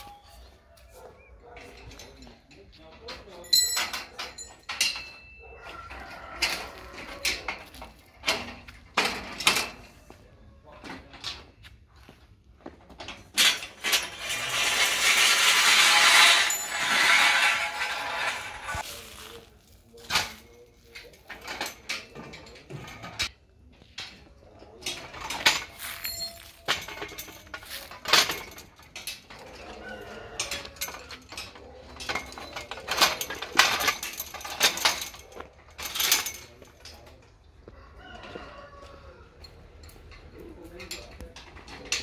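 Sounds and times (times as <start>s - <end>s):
metal parts clinking and knocking: 1.6s - 9.9s, 13.0s - 23.3s, 24.8s - 37.3s.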